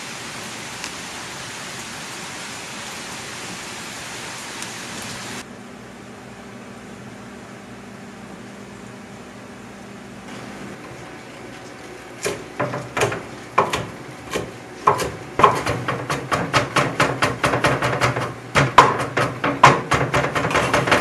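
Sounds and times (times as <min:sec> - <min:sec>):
knife chopping on wooden board: 0:12.2 - 0:21.0.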